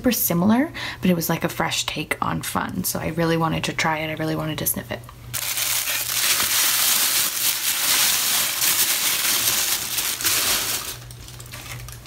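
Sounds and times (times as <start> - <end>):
tissue paper crinkling: 5.3 - 12.0.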